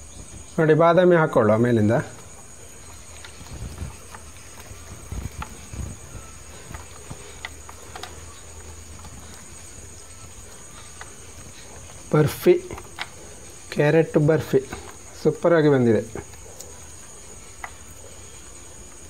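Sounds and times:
almonds clicking on tray: 0:02.1 - 0:15.5.

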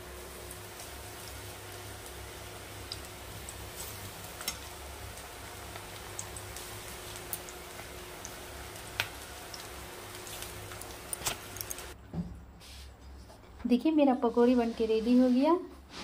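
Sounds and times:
food deep-frying in hot oil: 0:00.0 - 0:12.0
oil crackling and popping: 0:00.3 - 0:12.0.

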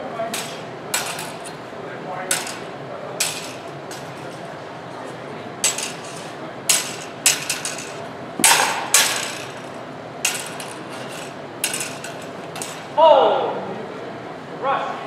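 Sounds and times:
fencing blades clashing: 0:00.3 - 0:01.6, 0:02.3 - 0:04.6, 0:05.6 - 0:13.0.

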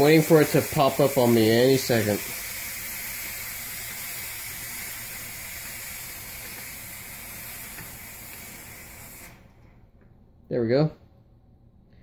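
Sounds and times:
steam hissing: 0:00.0 - 0:09.8.

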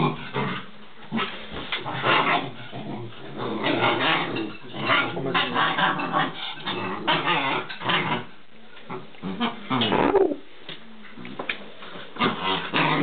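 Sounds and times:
puppies growling: 0:00.0 - 0:10.5, 0:11.2 - 0:13.0
puppies whining: 0:09.8 - 0:10.4.

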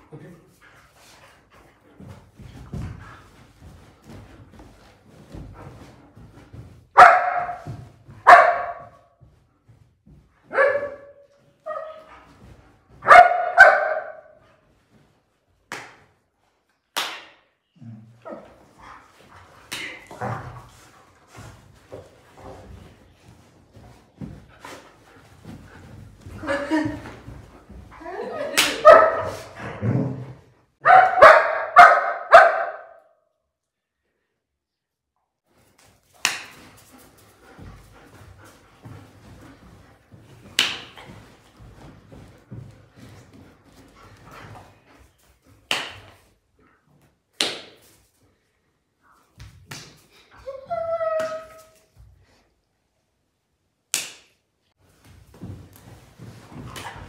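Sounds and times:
dogs scuffling on a bed: 0:00.6 - 0:13.5, 0:18.4 - 0:29.6, 0:35.5 - 0:45.6, 0:54.8 - 0:57.0
dog barking: 0:07.0 - 0:09.0, 0:10.5 - 0:12.0, 0:13.0 - 0:14.4, 0:28.7 - 0:29.5, 0:30.8 - 0:33.1.

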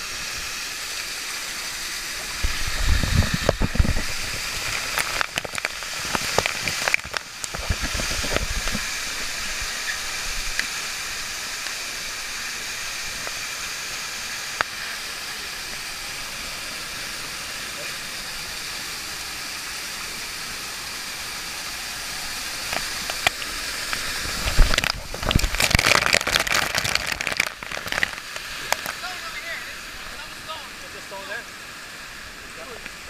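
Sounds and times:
waterfall rushing: 0:00.0 - 0:33.0
water splashing on microphone: 0:01.5 - 0:13.5, 0:21.8 - 0:30.6.

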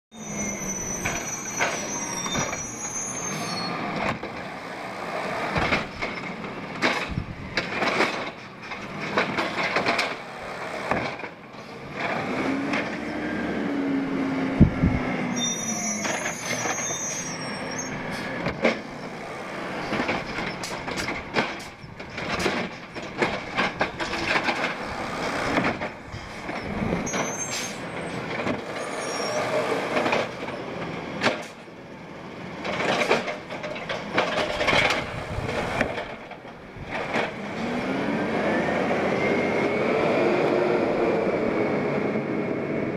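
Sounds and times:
brakes squealing: 0:00.1 - 0:07.2, 0:11.6 - 0:41.4
garbage truck engine revving: 0:11.7 - 0:31.3, 0:36.8 - 0:42.8.

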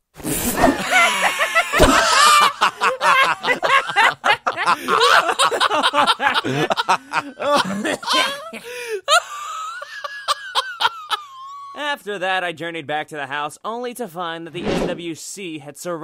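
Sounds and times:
cartoon men laughing: 0:00.3 - 0:11.8.

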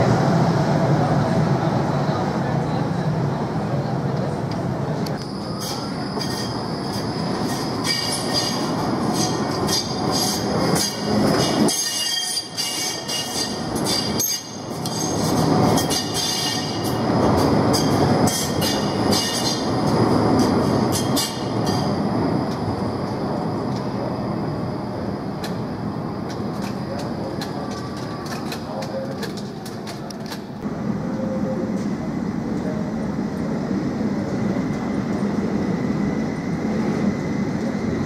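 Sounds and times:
tram rumbling past: 0:00.0 - 0:38.0
tram wheels squealing on rails: 0:05.0 - 0:32.8.

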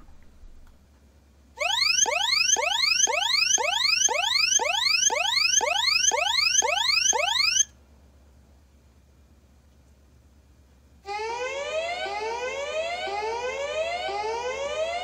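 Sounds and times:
electronic alarm whooping tones: 0:01.6 - 0:07.7.

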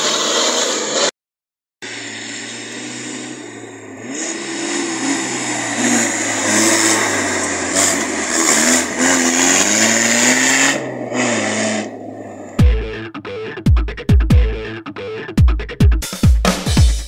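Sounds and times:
dense rushing noise: 0:01.8 - 0:12.6
suv engine revving: 0:01.8 - 0:13.0.

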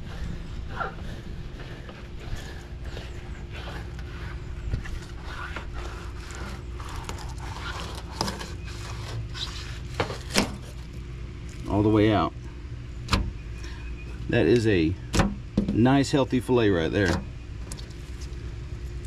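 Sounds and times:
knife scraping along fish bones: 0:00.7 - 0:10.9.

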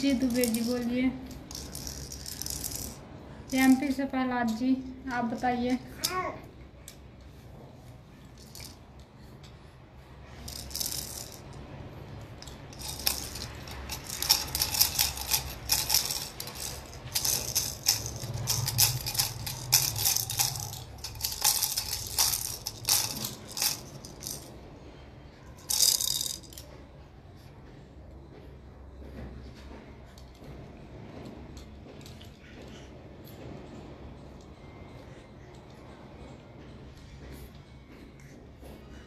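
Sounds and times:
plastic baby rattle shaking: 0:00.0 - 0:04.6, 0:08.3 - 0:09.1, 0:10.4 - 0:11.7, 0:12.4 - 0:24.6, 0:25.6 - 0:26.7.

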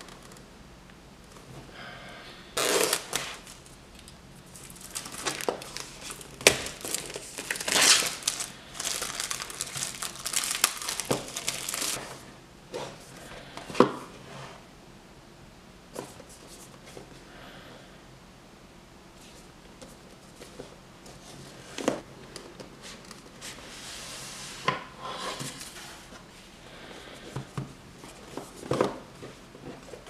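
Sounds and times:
plastic shrink-wrap crinkling: 0:02.6 - 0:12.0.

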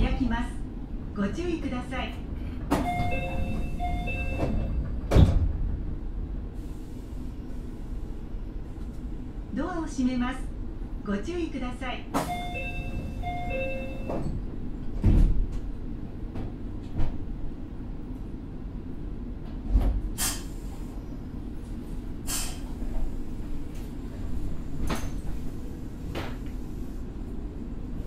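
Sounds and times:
train doors thudding shut: 0:02.5 - 0:06.0, 0:12.1 - 0:17.3
two-tone electronic chime: 0:02.9 - 0:04.5, 0:12.3 - 0:14.1
air hiss bursts: 0:20.2 - 0:20.9.

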